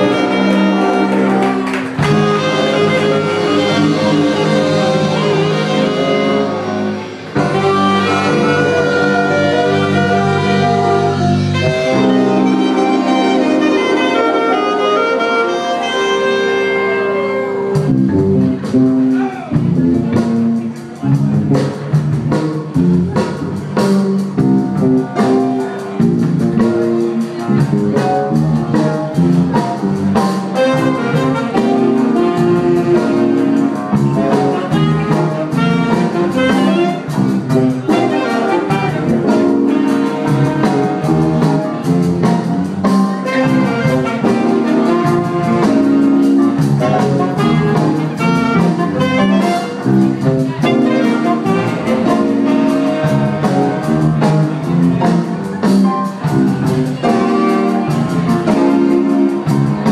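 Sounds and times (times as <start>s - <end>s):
saxophones: 0.0s - 19.1s, 30.5s - 41.8s, 43.2s - 54.2s
drums: 0.0s - 59.9s
electric bass: 0.0s - 59.9s.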